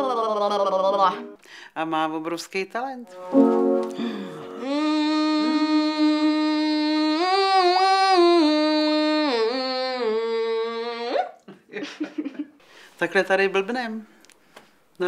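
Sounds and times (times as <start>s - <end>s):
woman singing long note: 3.1s - 11.2s.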